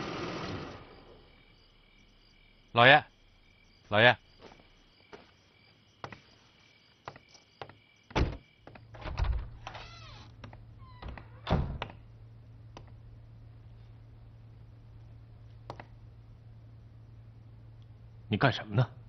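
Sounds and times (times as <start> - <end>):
crickets chirping: 0.0 - 19.0
doors thudding shut: 8.1 - 10.3, 10.9 - 12.0
creaking squeak: 9.6 - 11.6.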